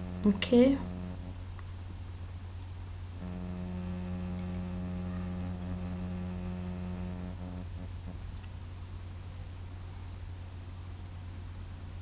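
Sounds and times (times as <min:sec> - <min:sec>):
pitched buzzing drone: 0:00.0 - 0:01.6, 0:03.1 - 0:08.5
electrical mains hum: 0:00.0 - 0:12.0.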